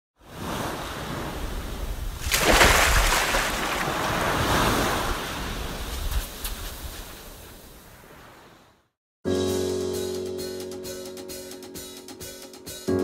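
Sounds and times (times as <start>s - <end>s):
ocean waves washing in: 0.2s - 8.9s.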